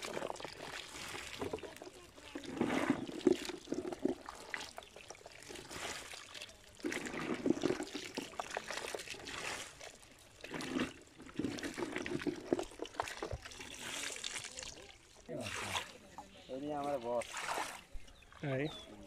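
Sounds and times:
wet pours into basket: 0:00.0 - 0:16.0
water trickling: 0:00.0 - 0:19.0.

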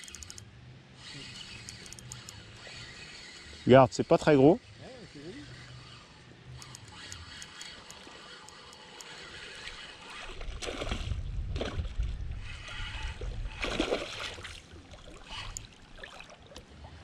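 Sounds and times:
fish splashing at surface: 0:13.6 - 0:16.4.

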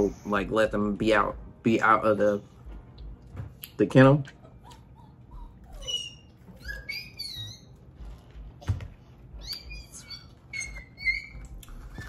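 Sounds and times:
puppies whimpering: 0:04.3 - 0:08.0, 0:09.3 - 0:12.0.

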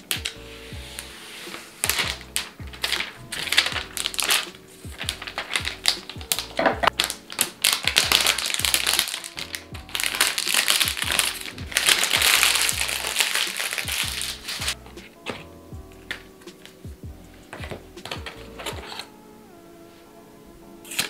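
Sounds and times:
plastic sleeve crinkling: 0:00.0 - 0:00.4, 0:01.0 - 0:16.8
background music with steady beat: 0:00.0 - 0:21.0.

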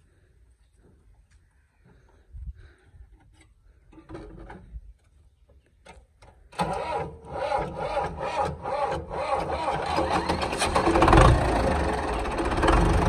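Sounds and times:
diesel engine cranking: 0:06.5 - 0:13.0.

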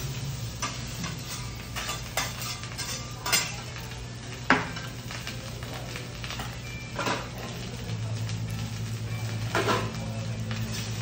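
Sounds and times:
metal spatula scraping griddle: 0:00.0 - 0:03.6, 0:10.6 - 0:11.0
light sizzle: 0:00.0 - 0:11.0.

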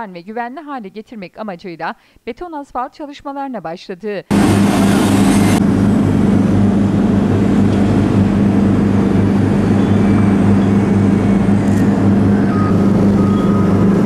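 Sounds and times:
heavy diesel engine droning: 0:04.3 - 0:14.0.

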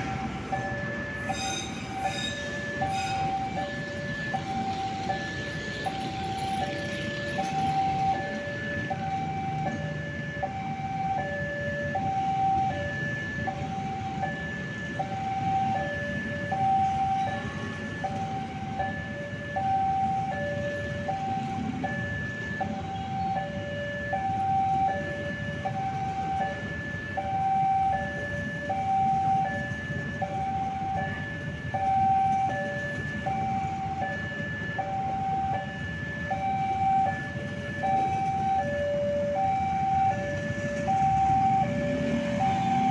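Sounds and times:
train carriages rumbling on rails: 0:00.0 - 0:10.4, 0:25.0 - 0:42.9.

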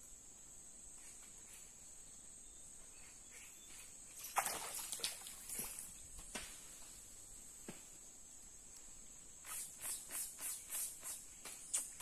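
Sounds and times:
sharp splashes and knocks: 0:04.2 - 0:06.6.

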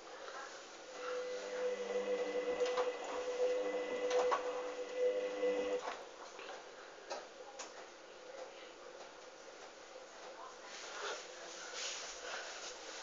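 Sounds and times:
washing machine motor whining: 0:00.9 - 0:06.0.

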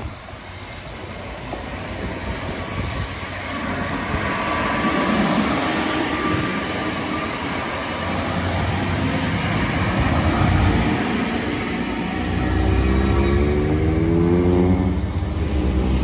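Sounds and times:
train wheels rumbling on rails: 0:00.0 - 0:16.0
faint high wheel squeal: 0:02.7 - 0:09.8.

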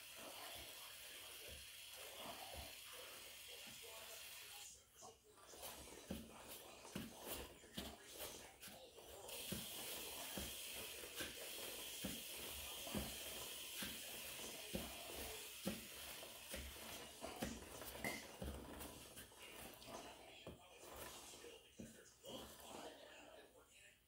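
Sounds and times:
aerosol spray hissing: 0:09.3 - 0:18.2.

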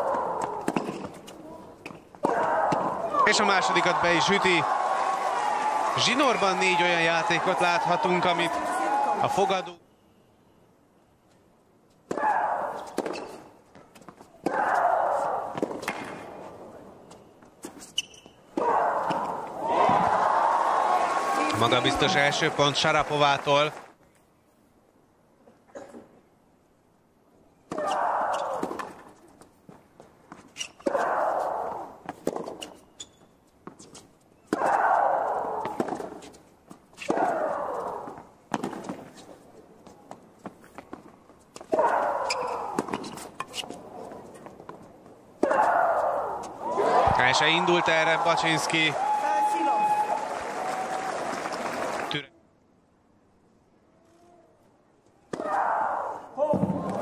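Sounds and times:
crowd cheering and clapping: 0:03.2 - 0:09.3, 0:19.0 - 0:24.0, 0:46.6 - 0:52.3
footsteps on tennis court: 0:12.8 - 0:14.6, 0:28.6 - 0:31.0, 0:35.6 - 0:47.2.

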